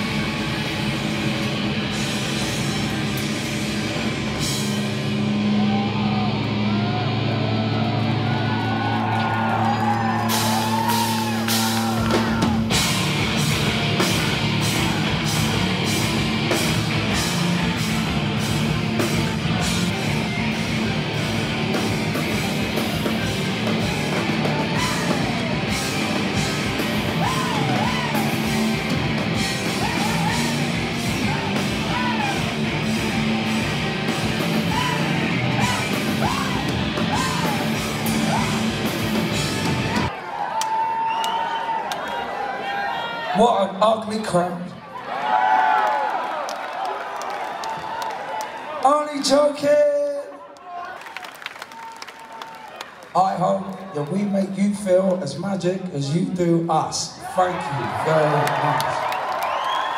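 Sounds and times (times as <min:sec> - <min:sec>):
live rock band playing: 0:00.0 - 0:40.1
drums: 0:00.0 - 0:41.6.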